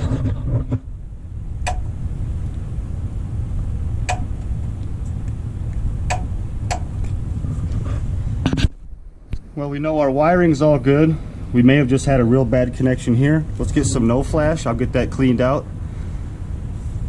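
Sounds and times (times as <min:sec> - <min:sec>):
low machinery rumble: 0:00.0 - 0:17.0
compressor clutch clicking: 0:06.1 - 0:07.1.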